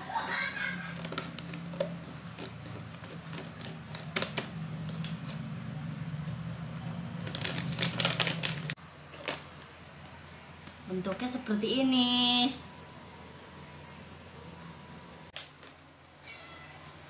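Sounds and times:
bag crinkling: 7.2 - 9.6.

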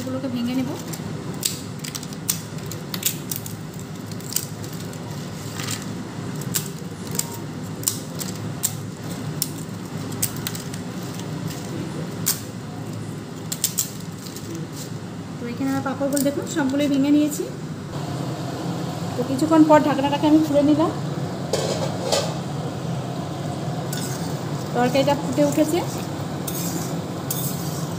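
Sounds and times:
low background hum: 0.0 - 27.9
papads cracking and crumbling: 0.8 - 11.8.

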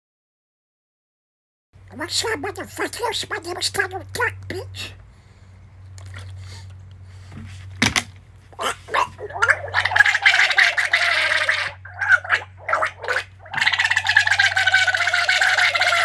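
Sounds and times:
man gargling water: 8.6 - 16.0.

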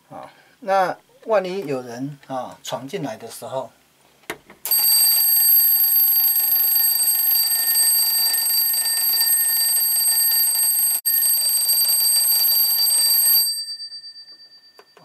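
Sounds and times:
alarm clock bells ringing: 4.7 - 15.0.

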